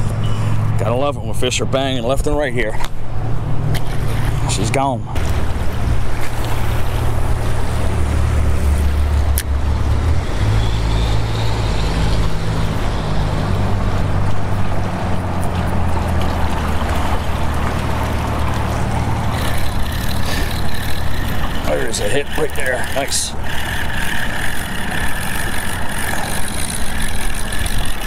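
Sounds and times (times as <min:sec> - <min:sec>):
motorboat engine droning: 0:00.0 - 0:28.0
rushing water: 0:03.0 - 0:28.0.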